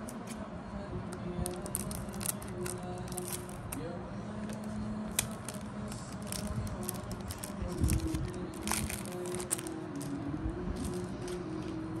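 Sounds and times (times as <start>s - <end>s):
faint background music: 0.0s - 12.0s
cards being handled: 1.4s - 3.8s, 4.4s - 10.2s
wrapper crinkling and rustling: 1.4s - 3.8s, 4.5s - 10.2s, 10.8s - 12.0s.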